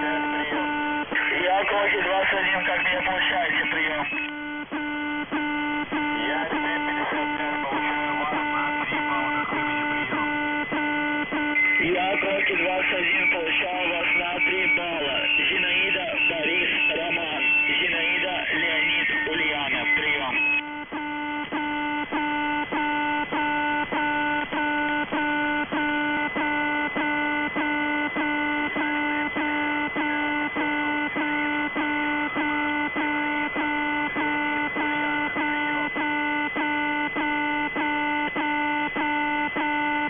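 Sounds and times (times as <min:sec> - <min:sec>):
radio hiss: 0:00.0 - 0:04.3, 0:05.9 - 0:10.3, 0:11.2 - 0:20.6
buzzing horn-like radio tone: 0:00.0 - 0:40.0.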